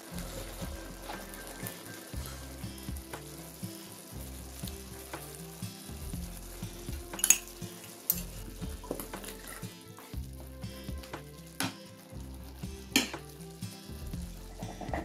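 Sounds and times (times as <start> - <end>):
pan of food bubbling and sizzling: 0.0 - 15.0.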